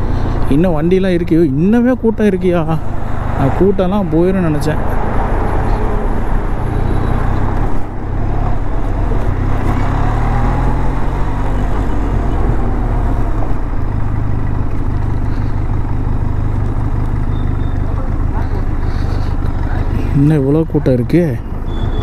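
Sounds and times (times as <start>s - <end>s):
motorcycle engine running: 11.6s - 22.0s.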